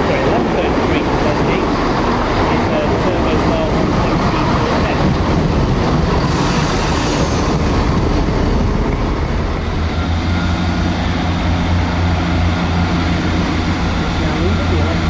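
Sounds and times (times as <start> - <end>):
approaching train diesel hum: 0.0 - 15.0
diesel train engines running: 0.0 - 15.0.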